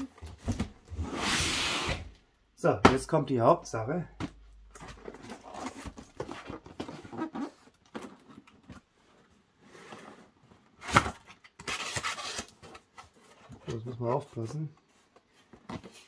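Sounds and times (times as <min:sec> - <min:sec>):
box thump: 0:02.8 - 0:03.2, 0:04.1 - 0:06.9
cardboard box rustling: 0:04.2 - 0:10.3.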